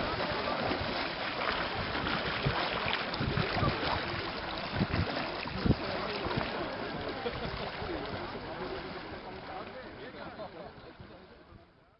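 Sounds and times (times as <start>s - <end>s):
wind buffeting the microphone: 0.0s - 6.6s
swimmers splashing in water: 0.0s - 11.2s.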